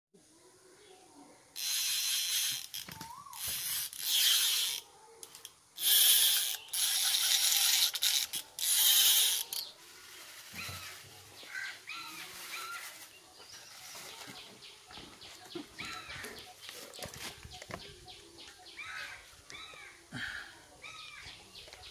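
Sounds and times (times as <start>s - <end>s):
fishing reel ratchet buzzing: 1.6s - 9.7s.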